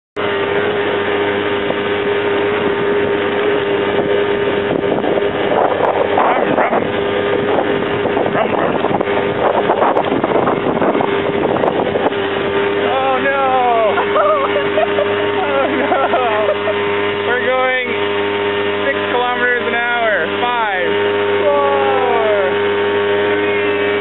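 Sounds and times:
wind noise on microphone: 0.2 - 16.0
atv engine running: 0.2 - 24.0.

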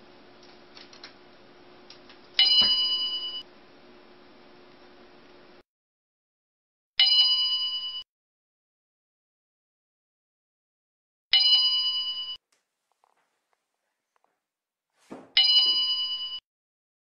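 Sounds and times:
bell-like ding: 2.4 - 3.4, 15.4 - 16.4
soft thump: 15.0 - 15.4.

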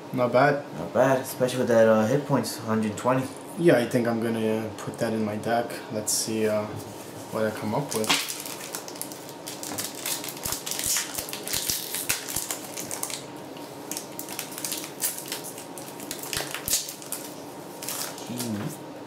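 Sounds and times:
foil wrapper crinkling: 7.7 - 18.7
foil wrapper tearing: 7.9 - 13.3, 13.9 - 18.6.

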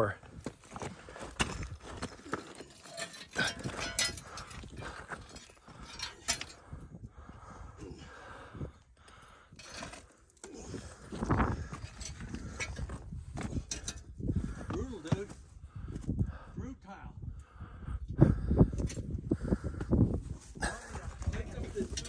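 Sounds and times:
footsteps on loose rocks: 0.2 - 6.6, 9.6 - 16.1.

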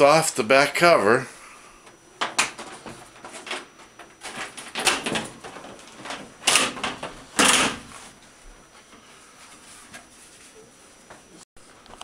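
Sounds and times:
plastic cover scraping and rattling: 2.2 - 8.2.

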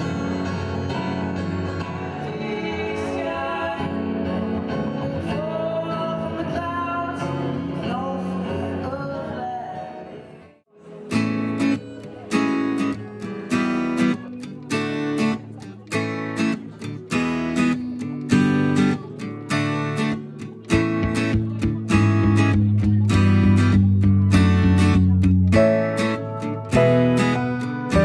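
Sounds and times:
acoustic guitars playing: 0.0 - 28.0
man singing: 1.9 - 10.4
strummed acoustic guitar chords: 10.8 - 28.0.

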